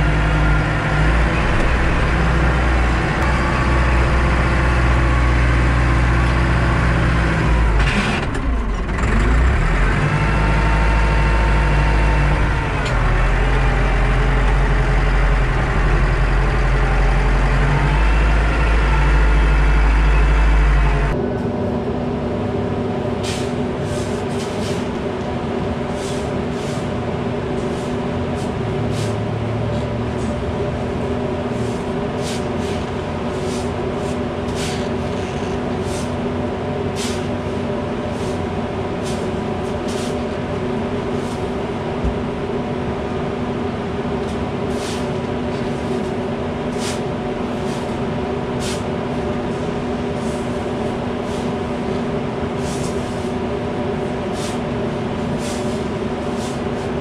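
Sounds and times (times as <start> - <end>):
tractor engine running: 0.0 - 57.0
shovel scraping grain: 26.0 - 26.8, 31.6 - 34.8, 35.8 - 36.2, 38.1 - 38.4, 39.9 - 40.2, 44.7 - 45.0, 46.7 - 48.0, 48.6 - 48.8, 52.6 - 53.3, 54.3 - 54.6, 55.4 - 56.8.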